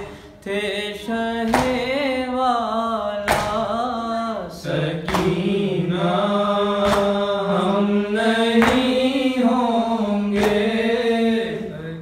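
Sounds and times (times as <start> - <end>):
man chanting a lament: 0.0 - 12.0
hand slapping chest: 1.5 - 1.8, 3.3 - 3.7, 5.0 - 5.5, 6.8 - 7.2, 8.6 - 9.0, 10.4 - 10.7.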